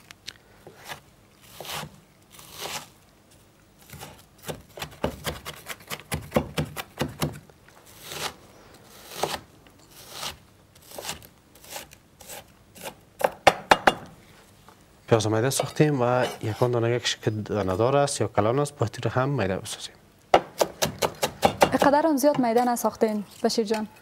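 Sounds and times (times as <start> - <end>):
knife chopping on wooden board: 3.9 - 7.4, 20.4 - 22.5.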